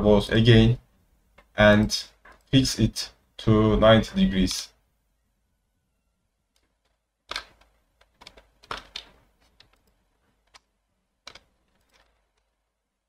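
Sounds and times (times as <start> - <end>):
mouse and keyboard clicks: 6.6 - 12.5.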